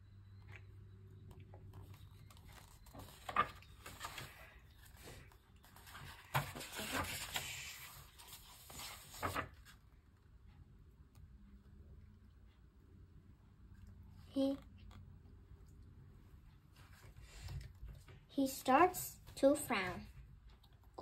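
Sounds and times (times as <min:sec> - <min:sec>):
paper page rustling: 0:01.9 - 0:09.8.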